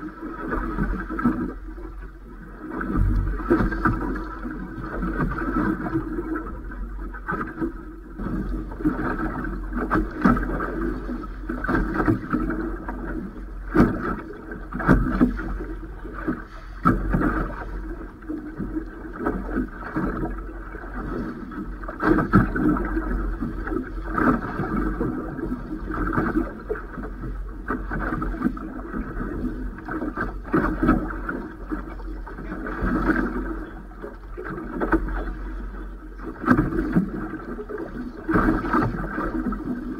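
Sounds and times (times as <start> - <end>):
steady low rumble: 0.0 - 27.6
water slapping against boat hull: 0.0 - 39.9.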